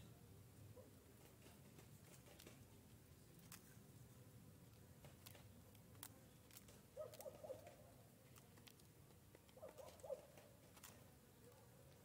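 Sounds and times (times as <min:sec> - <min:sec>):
dove cooing: 0:09.6 - 0:10.4.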